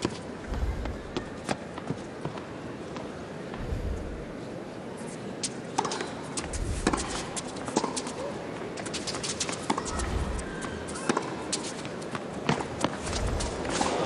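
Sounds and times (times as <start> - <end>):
players' footsteps: 5.4 - 14.0.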